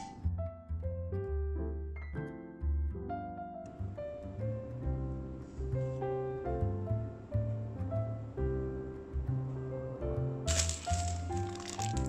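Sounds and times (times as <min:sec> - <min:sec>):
piano-like background music: 0:00.0 - 0:12.0
baking paper rustling: 0:10.5 - 0:12.0.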